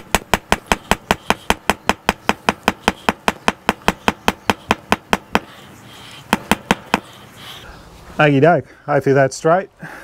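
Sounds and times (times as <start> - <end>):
rubber mallet beating metal peg: 0.0 - 5.5.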